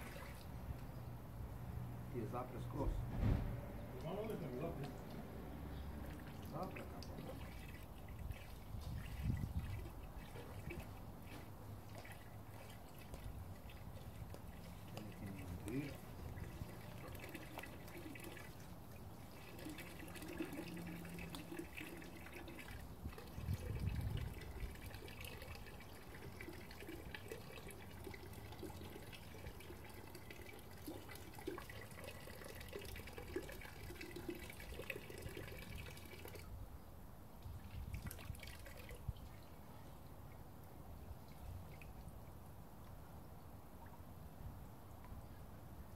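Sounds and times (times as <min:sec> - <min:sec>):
water splashing into a barrel: 0:00.0 - 0:00.6, 0:03.1 - 0:36.6, 0:37.4 - 0:39.6
low pump knocks: 0:03.0 - 0:03.8.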